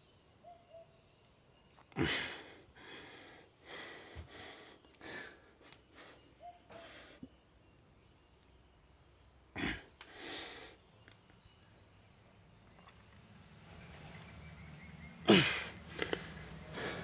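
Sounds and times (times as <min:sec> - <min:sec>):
man grunting: 0:02.0 - 0:02.4, 0:15.3 - 0:15.8
man breathing forcefully: 0:02.0 - 0:07.2, 0:15.3 - 0:17.0.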